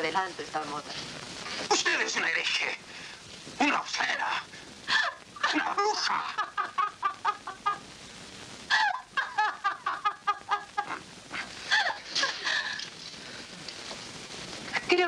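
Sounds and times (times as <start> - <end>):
woman laughing: 4.9 - 7.8, 8.7 - 12.8.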